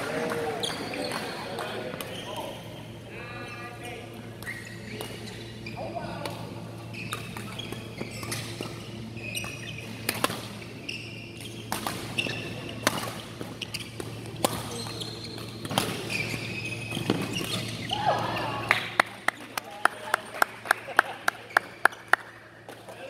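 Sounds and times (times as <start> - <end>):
steady low hum: 0.0 - 23.0
sneakers squeaking on court: 0.3 - 3.0, 4.2 - 6.0, 6.6 - 18.0.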